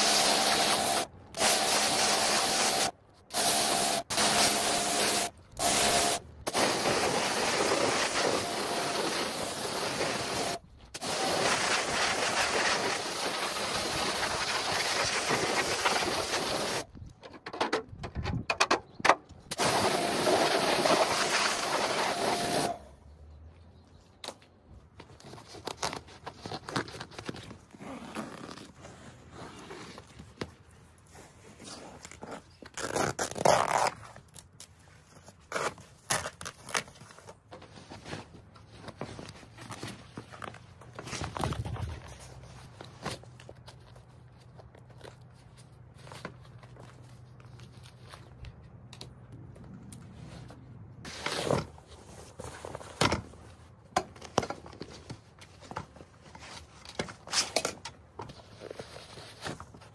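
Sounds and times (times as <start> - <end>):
pressure washer jet hissing: 0.0 - 16.8, 19.6 - 22.7.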